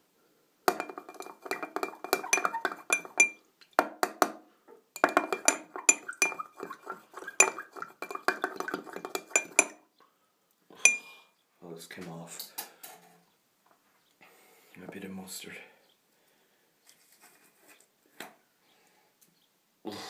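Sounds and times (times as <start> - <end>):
knife clinking against glass: 0.7 - 3.4, 5.0 - 9.8.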